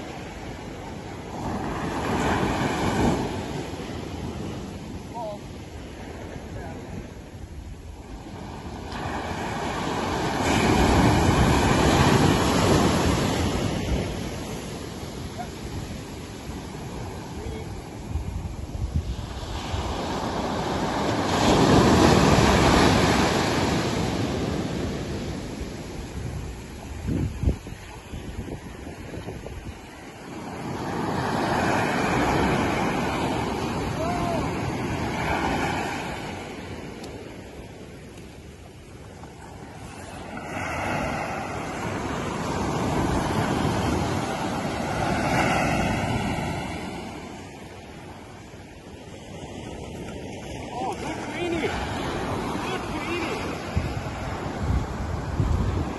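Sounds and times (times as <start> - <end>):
ocean waves crashing on beach: 0.0 - 55.9.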